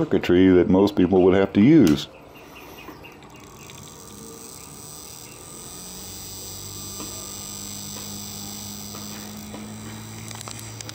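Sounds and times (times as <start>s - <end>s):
electric motor humming: 3.2s - 10.9s
faint high whine: 3.4s - 10.9s.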